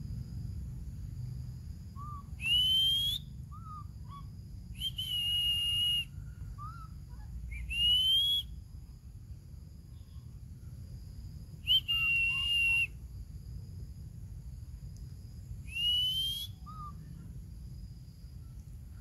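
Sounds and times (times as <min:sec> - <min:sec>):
soft chirps: 0:01.9 - 0:09.0, 0:11.6 - 0:13.1, 0:14.9 - 0:19.0
loud high whistles: 0:02.0 - 0:06.9, 0:07.5 - 0:08.6, 0:11.6 - 0:13.0, 0:15.6 - 0:17.0.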